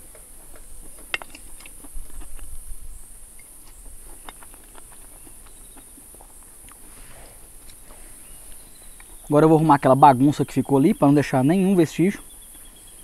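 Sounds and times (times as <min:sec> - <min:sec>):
high-pitched insect chorus: 0:08.1 - 0:13.0.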